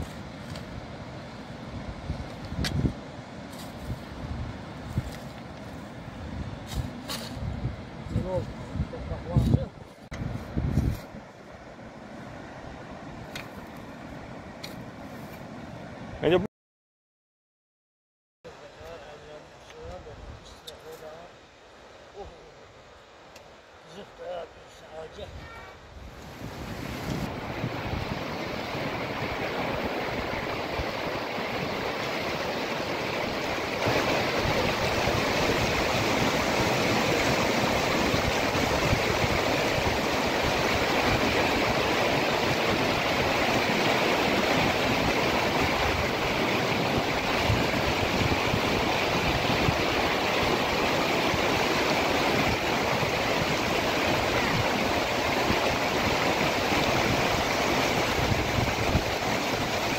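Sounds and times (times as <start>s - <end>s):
river rushing over rocks: 26.5s - 59.9s.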